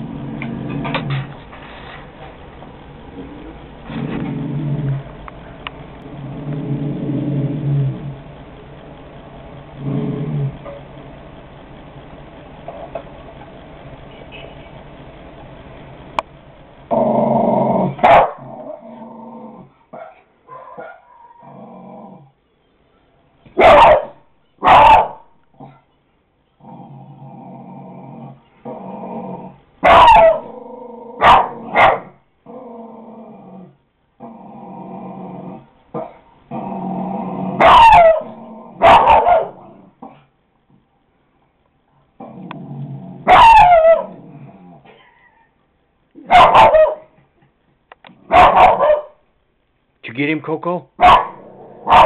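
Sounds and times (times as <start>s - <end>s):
dog growling: 0.0s - 1.4s, 3.0s - 5.1s, 6.0s - 8.3s, 9.7s - 10.8s, 16.9s - 19.8s, 20.6s - 22.4s, 26.6s - 31.8s, 32.4s - 40.3s, 42.2s - 45.5s, 51.2s - 52.0s
dog barking: 18.0s - 18.5s, 19.9s - 21.1s, 23.6s - 25.8s, 29.8s - 30.5s, 31.2s - 32.2s, 37.6s - 39.6s, 43.3s - 44.1s, 46.2s - 47.2s, 48.3s - 49.2s, 51.0s - 52.0s.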